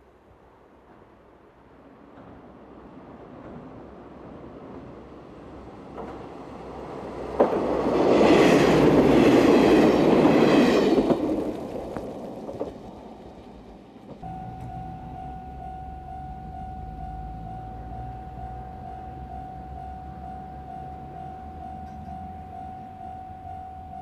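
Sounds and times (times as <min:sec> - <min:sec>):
diesel train passing: 0:00.1 - 0:24.0
steady high tone: 0:14.2 - 0:24.0.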